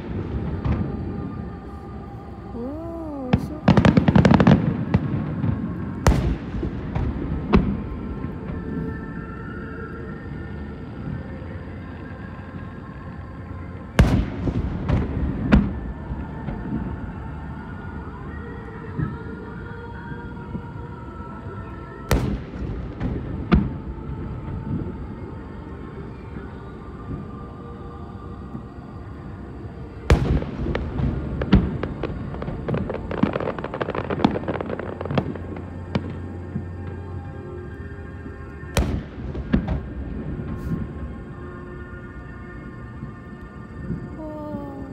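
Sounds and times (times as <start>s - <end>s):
firework pops and crackles: 3.3s - 8.8s, 22.1s - 24.9s, 30.1s - 36.8s, 38.3s - 41.0s
firework bangs: 3.3s - 9.0s, 14.0s - 17.0s, 22.1s - 25.0s, 30.1s - 37.1s, 38.6s - 41.4s.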